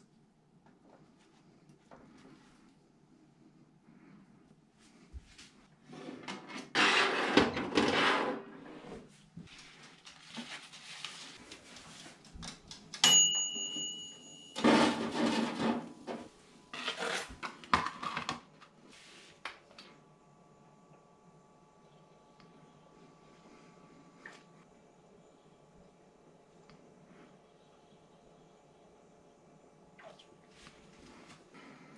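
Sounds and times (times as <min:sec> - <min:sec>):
oven timer bell ding: 0:13.0 - 0:15.1
oven door and wire rack clattering: 0:14.5 - 0:16.3.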